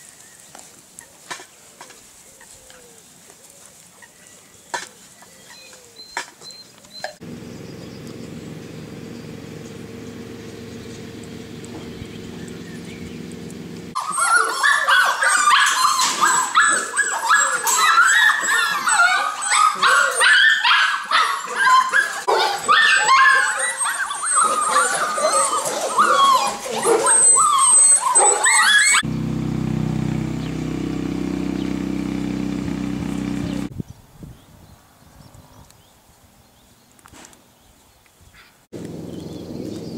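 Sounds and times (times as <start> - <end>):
steady low hum: 7.2 - 14.0, 29.0 - 33.7
puppies yelping and whining: 13.9 - 29.1.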